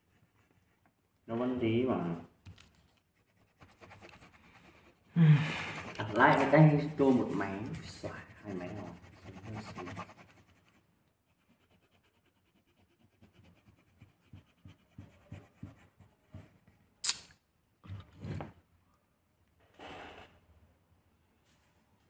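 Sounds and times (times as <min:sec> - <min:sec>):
pencils clicking and scratching: 0:02.5 - 0:10.8.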